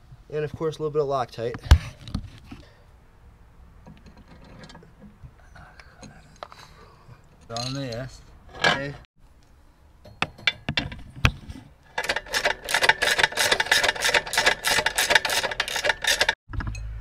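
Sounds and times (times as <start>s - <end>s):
metal clicks: 11.9s - 16.9s
ratchet wrench clicking: 12.0s - 16.4s.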